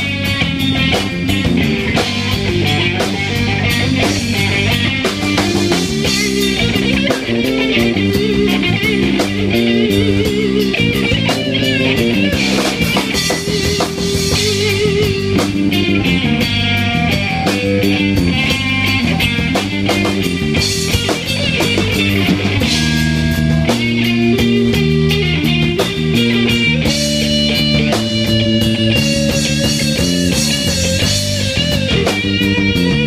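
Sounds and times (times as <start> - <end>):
drum kit: 0.0 - 33.0
electric guitars: 0.0 - 33.0.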